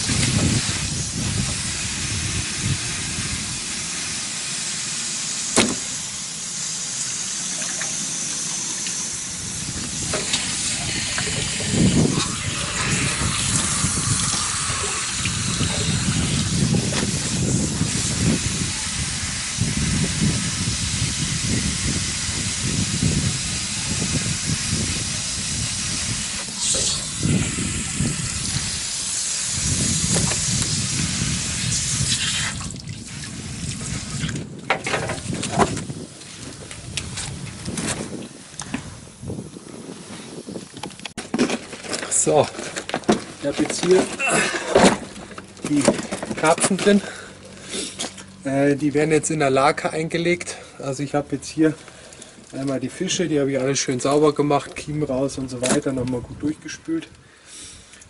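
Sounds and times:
garden hose water hissing: 0:00.0 - 0:41.1, 0:42.0 - 0:56.0
water splashing into metal tub: 0:07.4 - 0:18.2.

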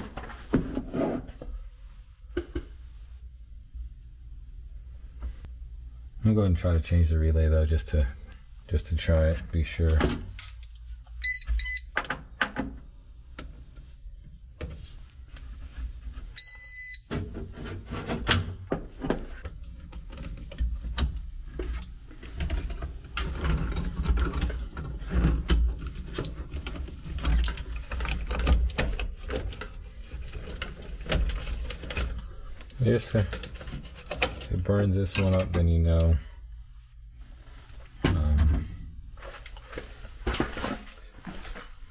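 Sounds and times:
electronic beeps: 0:11.2 - 0:12.0
clicks and rustles of wiring: 0:19.4 - 0:36.2, 0:39.2 - 0:41.8.

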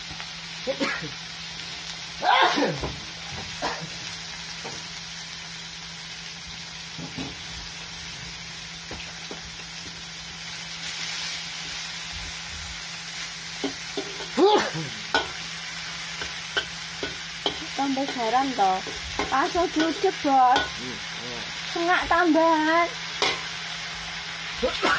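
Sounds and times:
greens sizzling in a wok: 0:00.0 - 0:24.9
metal spatula scraping a wok: 0:23.1 - 0:23.7.

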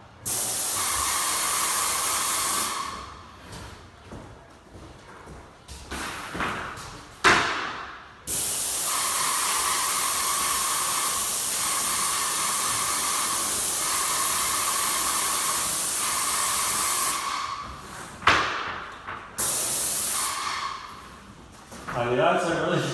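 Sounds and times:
paint spray gun hissing: 0:00.2 - 0:03.0, 0:08.3 - 0:17.6, 0:19.4 - 0:20.9.

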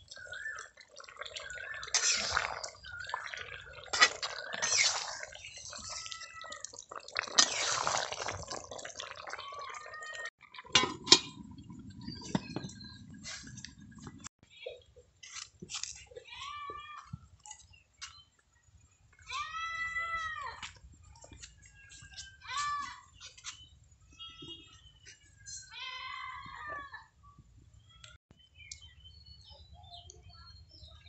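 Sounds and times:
spoon stirring thick curry: 0:00.1 - 0:09.2.

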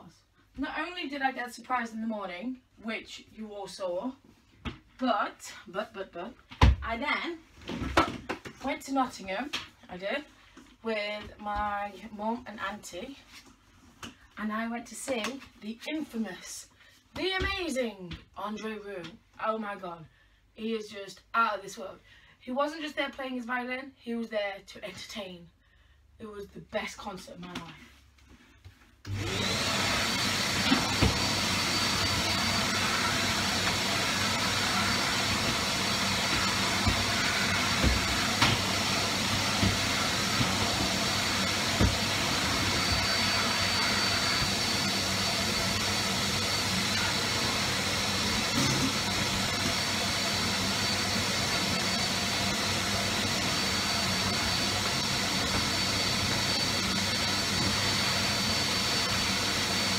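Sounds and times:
vacuum cleaner motor whining: 0:29.1 - 0:59.9.

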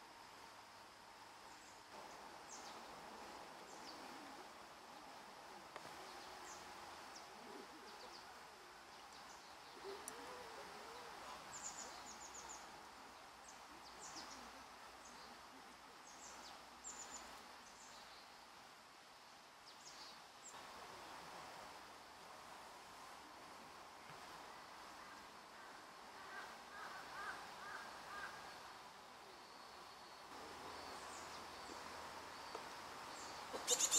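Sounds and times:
low even hiss: 0:00.0 - 0:33.9
high bird chirps: 0:33.6 - 0:33.9.

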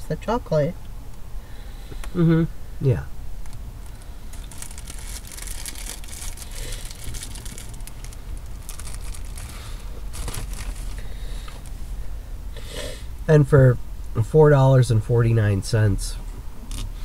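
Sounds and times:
low steady rumble: 0:00.0 - 0:17.0
food wrapping crinkling: 0:03.4 - 0:11.7.

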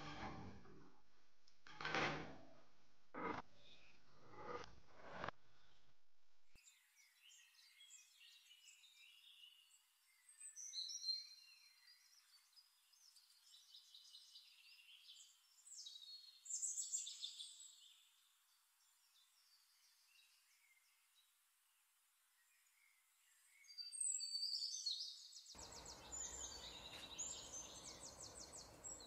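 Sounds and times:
birds chirping: 0:25.5 - 0:29.0.

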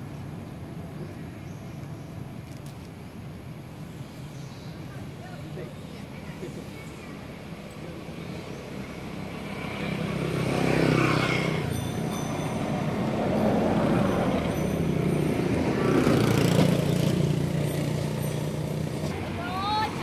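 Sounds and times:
vehicle engine passing: 0:09.0 - 0:20.0.

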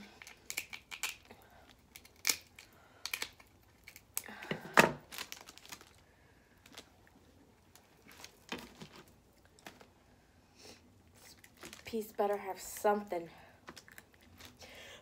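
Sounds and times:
scissors cracking crab shells: 0:00.0 - 0:04.4.

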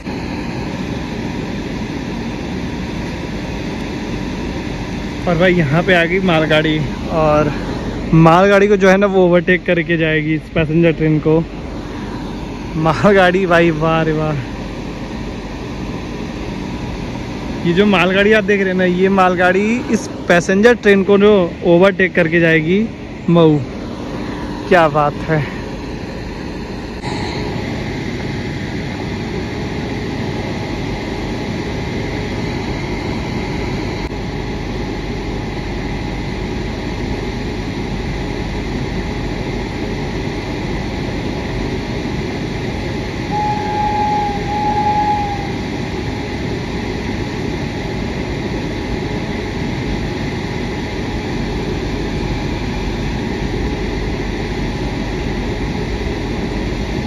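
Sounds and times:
train low rumble: 0:00.0 - 0:57.0
train horn blasts: 0:43.3 - 0:45.6.

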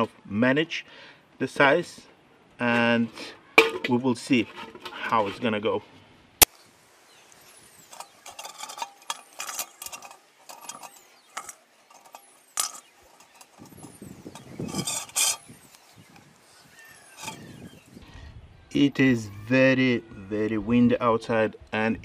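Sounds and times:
wind gust on microphone: 0:13.5 - 0:18.7.

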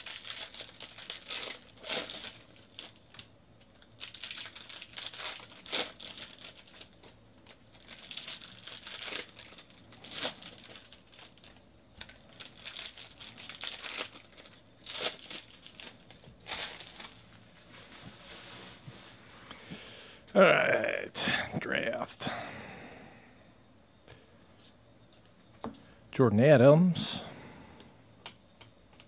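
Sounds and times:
foil wrapper crinkling and tearing: 0:00.0 - 0:17.5.

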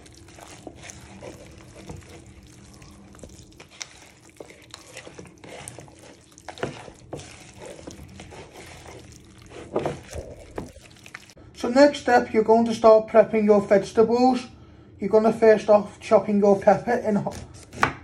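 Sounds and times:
hands squishing raw chicken: 0:00.0 - 0:11.4.

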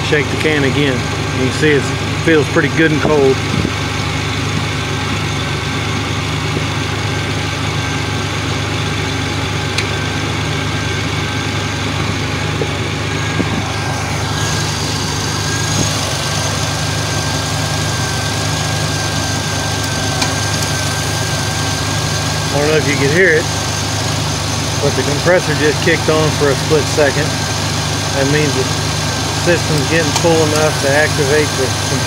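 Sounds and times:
engine idling: 0:00.0 - 0:32.0
thin steady whine: 0:09.4 - 0:32.0.

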